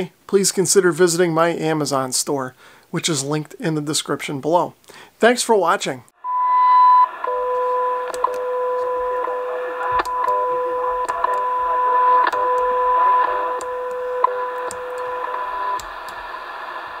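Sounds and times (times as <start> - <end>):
receiver hiss: 6.2 - 17.0
steady radio tone: 6.2 - 17.0
time signal ticks: 6.3 - 16.2.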